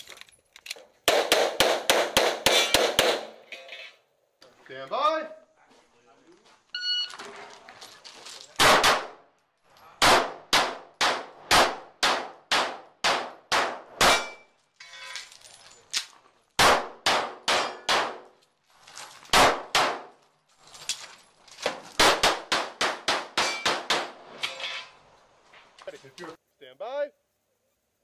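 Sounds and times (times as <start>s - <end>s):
pistol shots: 1.1s - 3.4s, 8.6s - 9.2s, 10.0s - 14.4s, 16.6s - 18.3s, 19.3s - 20.1s, 22.0s - 24.2s.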